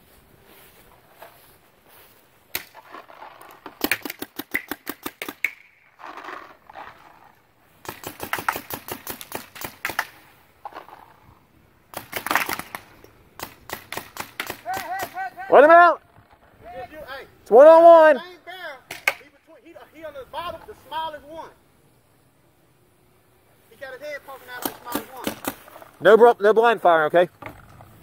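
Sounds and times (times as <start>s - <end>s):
paintball markers firing: 2.5s - 5.8s, 7.8s - 11.0s, 11.9s - 15.3s, 24.5s - 25.9s.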